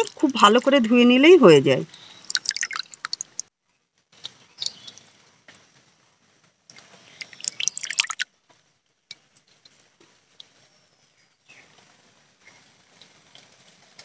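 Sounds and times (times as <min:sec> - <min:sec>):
water dripping: 0:00.0 - 0:03.5, 0:04.2 - 0:05.3, 0:06.7 - 0:08.3
water splashing and squelching: 0:00.0 - 0:03.5, 0:06.7 - 0:08.3.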